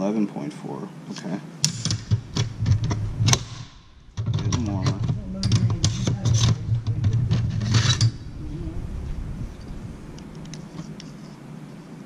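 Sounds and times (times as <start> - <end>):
low hum: 1.7 - 12.0.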